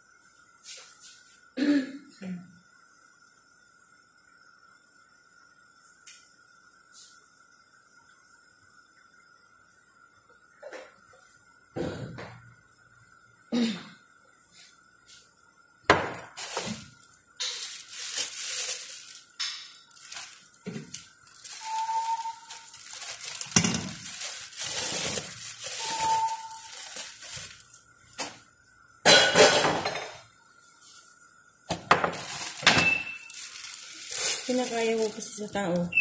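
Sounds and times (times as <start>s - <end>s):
plastic bag rustling: 16.3s - 28.4s, 31.9s - 35.9s
dishes clinking: 29.1s - 30.2s.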